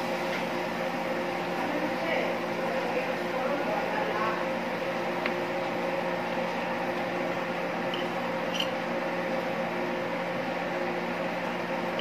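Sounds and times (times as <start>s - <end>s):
kitchen equipment humming: 0.0s - 12.0s.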